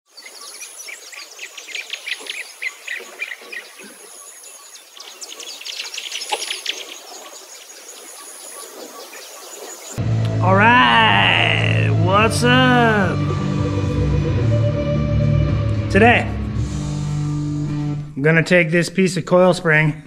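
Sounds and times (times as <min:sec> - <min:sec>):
birds chirping: 0:00.1 - 0:13.2.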